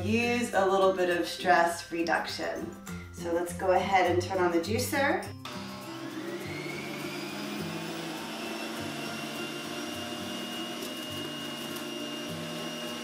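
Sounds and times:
electric juicer motor whine: 0:05.4 - 0:13.0.

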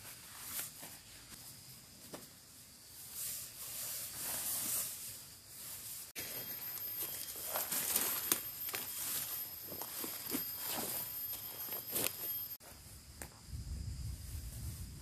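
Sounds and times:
footsteps through undergrowth: 0:05.6 - 0:12.8
twigs and dry leaves crackling: 0:06.2 - 0:12.6.

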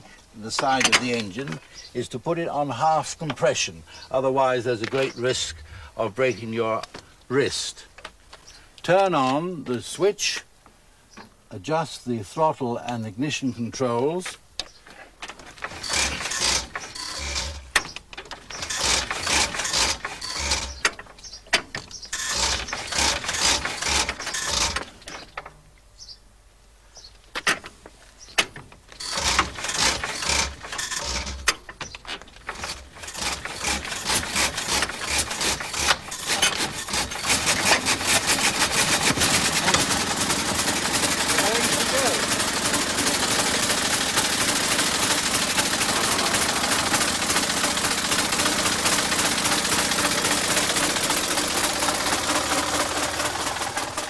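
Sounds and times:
engine being cranked by hand: 0:15.1 - 0:25.6, 0:28.4 - 0:54.0
engine running with fast firing: 0:37.3 - 0:54.0.

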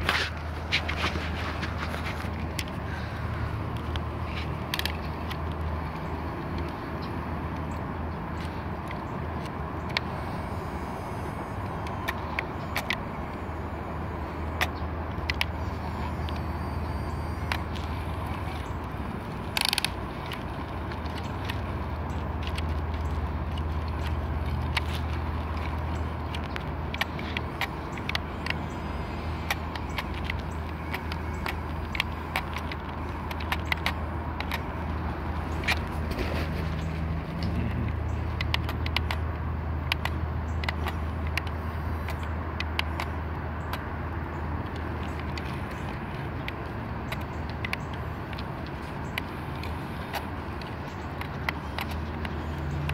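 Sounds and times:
toy excavator motors whirring: 0:00.0 - 0:52.9
rattling clicks: 0:14.2 - 0:52.9.

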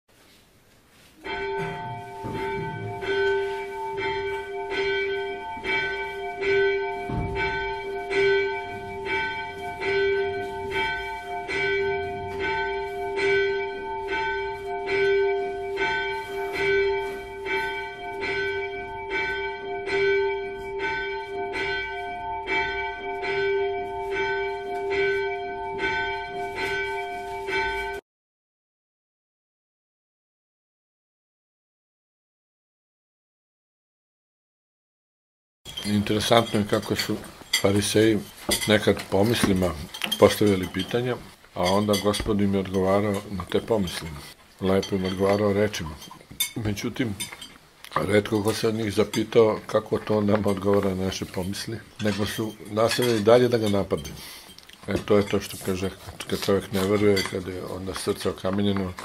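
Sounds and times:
church bell ringing: 0:01.2 - 0:28.0, 0:35.7 - 0:47.4, 0:48.0 - 0:54.4.

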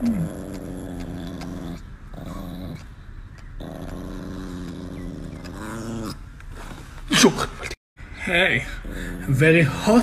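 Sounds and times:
small dog growling: 0:00.0 - 0:06.7.

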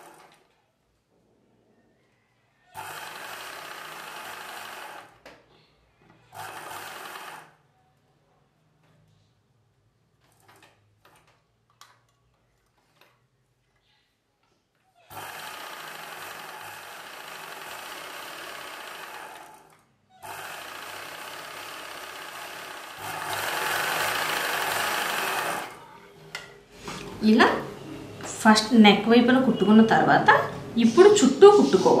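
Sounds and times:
sewing machine stitching: 0:00.0 - 0:00.5, 0:02.7 - 0:05.2, 0:06.2 - 0:07.6, 0:15.0 - 0:25.9.

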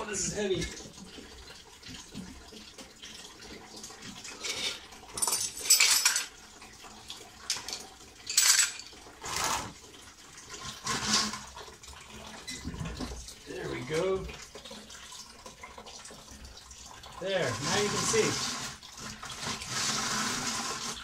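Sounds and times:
plastic tank scraping and clattering: 0:10.6 - 0:11.6, 0:12.4 - 0:13.2.

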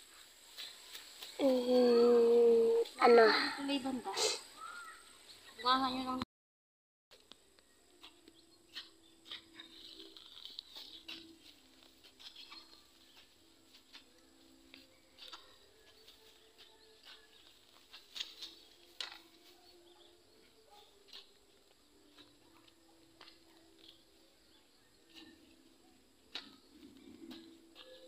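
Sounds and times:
hand-weeding clicks and scratches: 0:08.0 - 0:13.3, 0:14.8 - 0:19.3.

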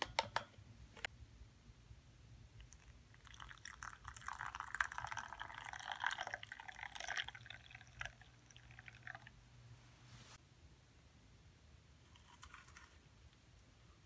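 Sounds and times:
hot water pouring into cup: 0:02.6 - 0:09.4.

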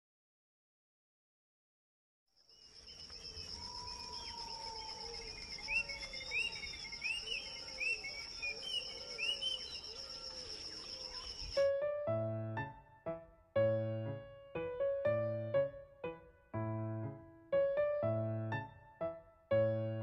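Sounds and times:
insect trill: 0:02.4 - 0:11.6
bird chirps: 0:02.5 - 0:11.7
low arching bird calls: 0:02.8 - 0:11.7.

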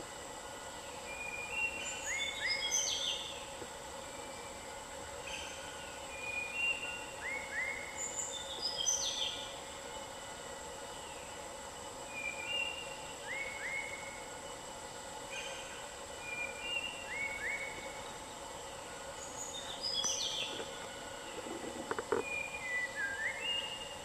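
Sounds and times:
steady high-pitched hum: 0:00.0 - 0:24.0.

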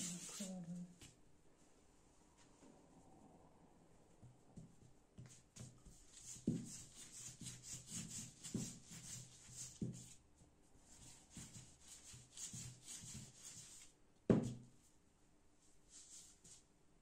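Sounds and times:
rolling pin rubbing on dough: 0:00.0 - 0:00.6, 0:04.5 - 0:10.2, 0:11.0 - 0:14.6.

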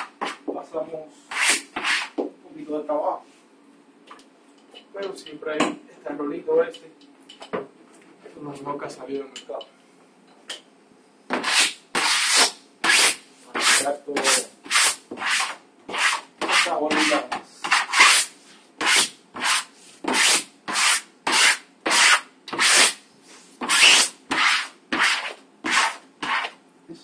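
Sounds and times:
sponge rubbing wallpaper: 0:01.3 - 0:02.2, 0:11.4 - 0:26.6.

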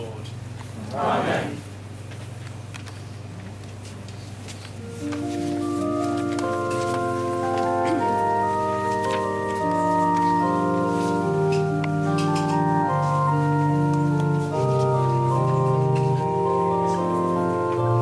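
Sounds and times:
organ playing hymn chords: 0:04.8 - 0:18.0.

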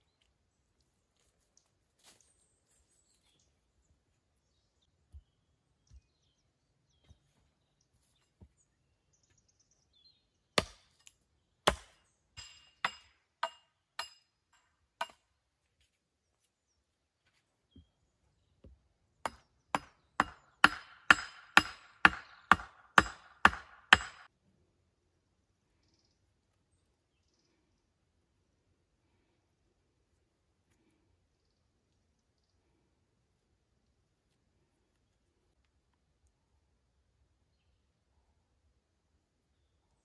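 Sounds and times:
hammer striking wooden pole: 0:11.7 - 0:14.2, 0:15.0 - 0:15.2, 0:19.3 - 0:24.3.

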